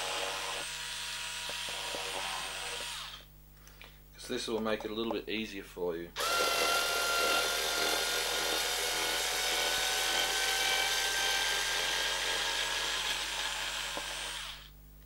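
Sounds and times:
electric screwdriver whining: 0.0 - 3.2, 6.2 - 14.7.

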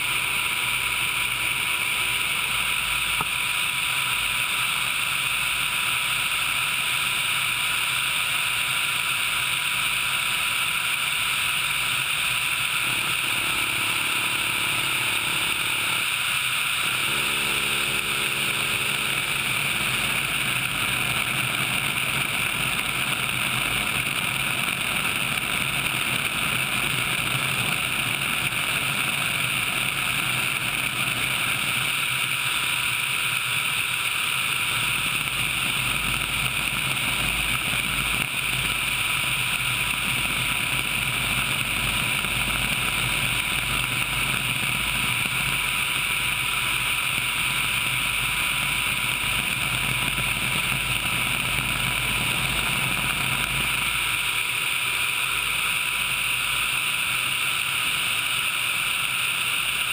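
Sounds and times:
thin constant whine: 0.0 - 59.9
helicopter rushing noise: 12.5 - 31.4.

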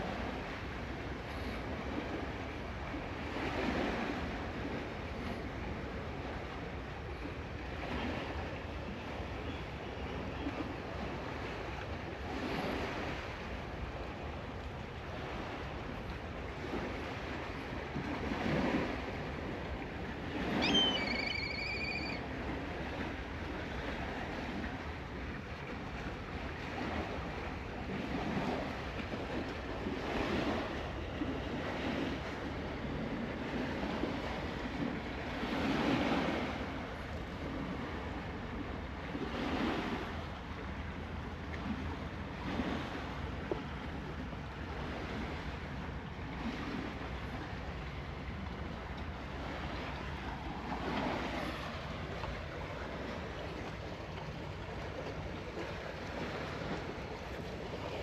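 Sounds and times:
sea surf washing: 0.0 - 58.0
wind: 0.0 - 58.0
high whistled call: 20.5 - 22.2.

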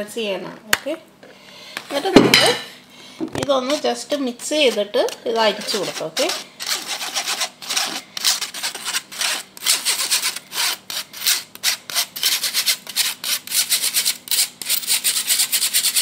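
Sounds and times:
fork scraping flour through sieve: 3.5 - 16.0.

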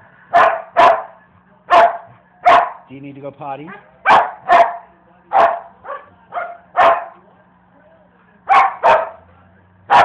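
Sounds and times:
dog barking: 0.3 - 2.9, 3.7 - 7.2, 8.5 - 9.2.

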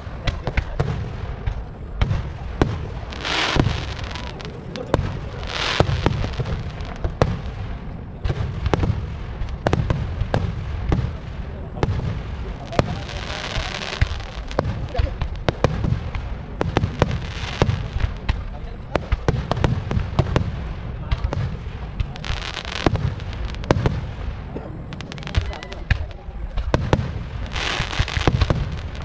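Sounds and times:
continuous low rumble: 0.0 - 29.0
firework shells bursting: 1.4 - 7.4.

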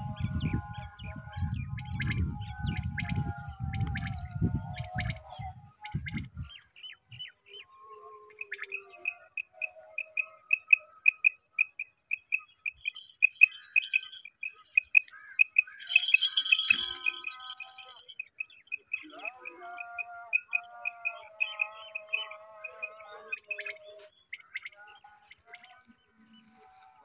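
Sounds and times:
bird chirps: 0.0 - 26.6
quail calling high pips: 8.3 - 24.8.

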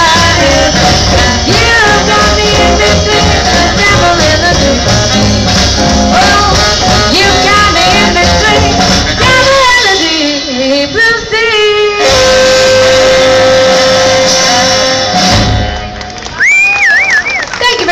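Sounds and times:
woman singing: 0.0 - 5.3, 6.1 - 13.2
jazz band playing: 0.0 - 16.5
drums: 0.0 - 17.9
saxophones: 12.0 - 16.0.

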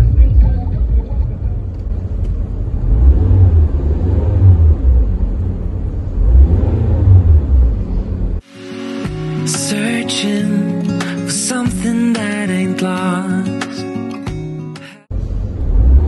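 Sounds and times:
car engine revving: 0.5 - 8.4, 15.1 - 16.0.

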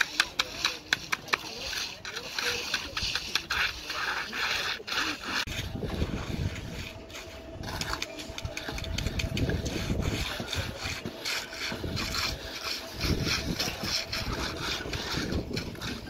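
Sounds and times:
trowel scraping wet concrete: 0.0 - 16.0.

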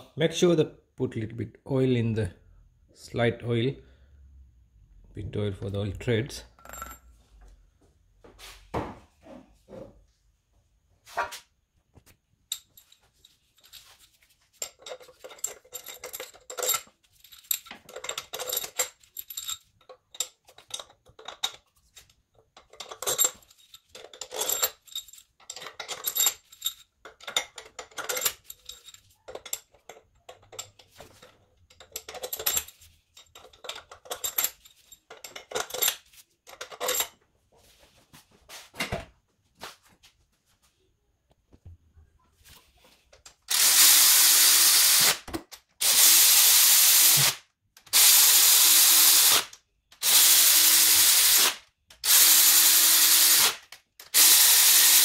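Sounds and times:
tools and bolts clinking: 6.5 - 7.4, 12.4 - 37.3.

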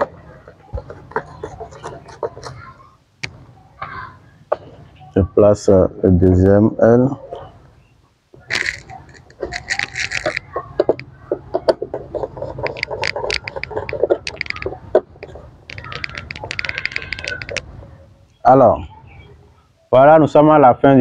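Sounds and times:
rapid even ticking: 8.4 - 18.4.

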